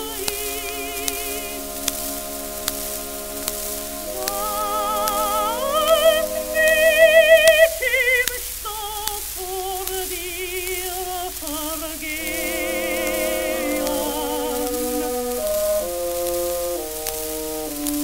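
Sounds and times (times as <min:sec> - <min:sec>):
slow wobbling melody: 0:00.0 - 0:08.0, 0:12.2 - 0:18.0
record crackle: 0:00.0 - 0:18.0.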